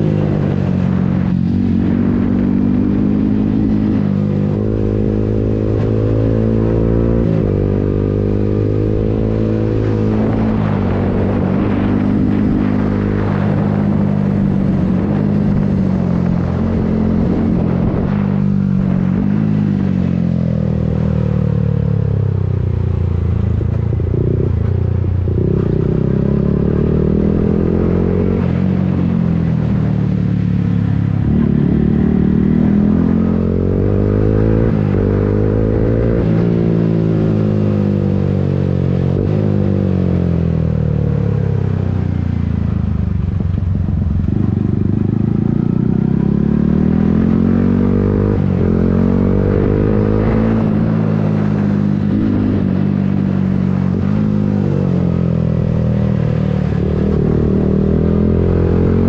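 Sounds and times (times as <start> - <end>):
wind rushing: 0.0 - 20.3
motorcycle engine accelerating: 0.0 - 59.0.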